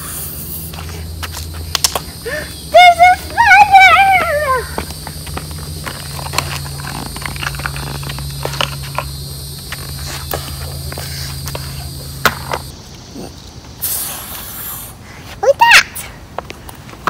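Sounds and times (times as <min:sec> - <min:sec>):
low hum: 0:00.0 - 0:12.8
footsteps on paved path: 0:00.0 - 0:13.1.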